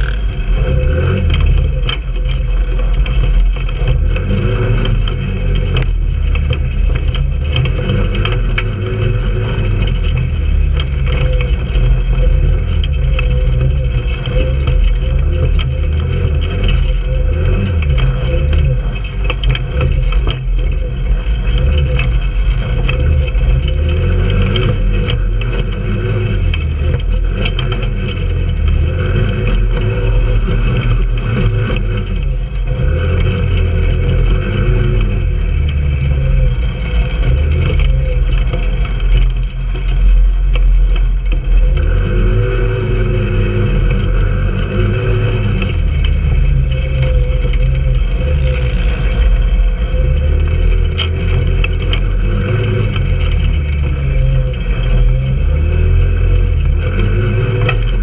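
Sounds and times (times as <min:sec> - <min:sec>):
go-kart engine under throttle: 0:00.0 - 0:58.0
knocks and rattles over bumps: 0:00.0 - 0:58.0.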